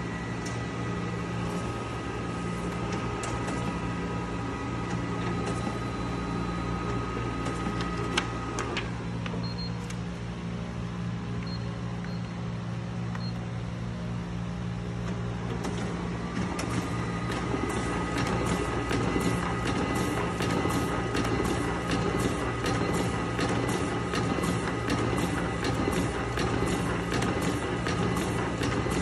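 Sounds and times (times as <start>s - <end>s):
duplicator mechanical hum: 0.0s - 29.0s.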